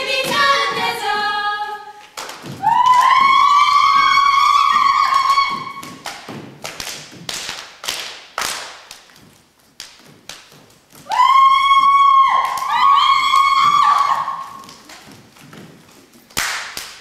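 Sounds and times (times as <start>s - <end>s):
sharp hits from dancers: 2.2s - 15.8s.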